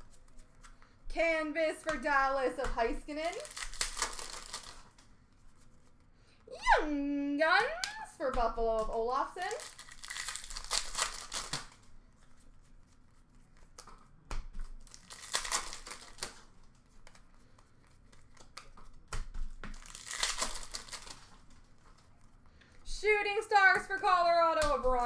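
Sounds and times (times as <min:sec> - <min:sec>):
cards handled: 0:00.0 - 0:01.0, 0:02.6 - 0:06.0, 0:08.8 - 0:22.8
foil wrappers crinkling and tearing: 0:03.2 - 0:05.0, 0:09.2 - 0:11.9, 0:14.7 - 0:16.5, 0:19.7 - 0:22.0.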